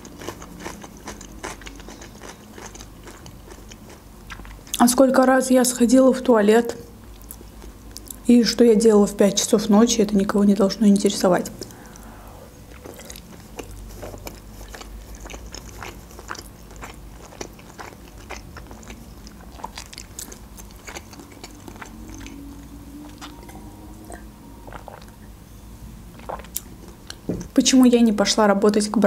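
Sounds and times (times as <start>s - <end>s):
chewing with mouth clicks: 0.0s - 4.8s, 11.4s - 25.3s, 26.2s - 27.5s.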